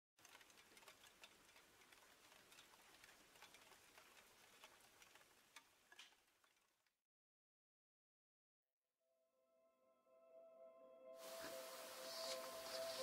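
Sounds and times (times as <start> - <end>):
small wood fire crackling: 0.2 - 7.0, 11.2 - 13.0.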